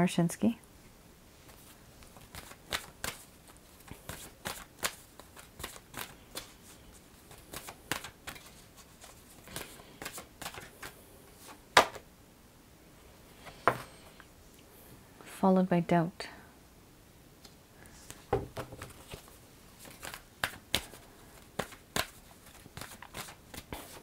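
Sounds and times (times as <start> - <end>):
cards being shuffled: 1.5 - 12.0, 18.0 - 24.0.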